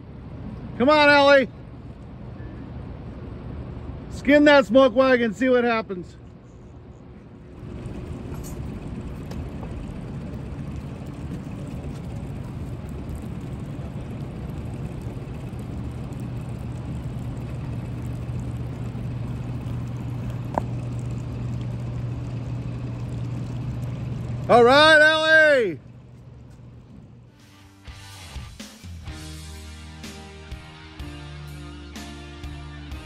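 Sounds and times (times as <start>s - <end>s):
outboard motor idling: 0.0s - 33.0s.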